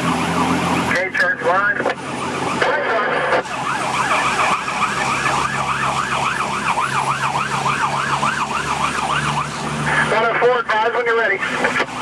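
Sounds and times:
engine drone: 0.0 - 12.0
fire engine siren yelping: 0.0 - 12.0.

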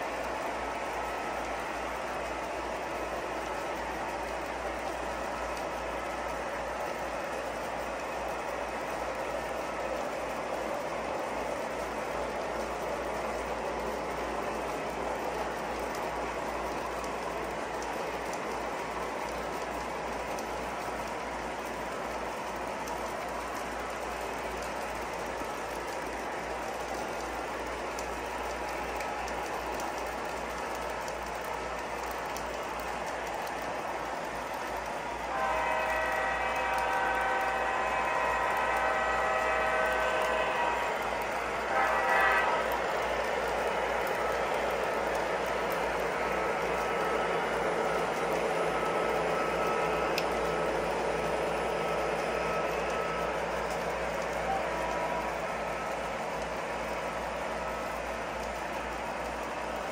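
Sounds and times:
model trains rumbling on track: 0.0 - 59.9
rail joint ticks: 0.0 - 59.9
multi-chime diesel horn: 35.3 - 41.0, 41.7 - 42.8.

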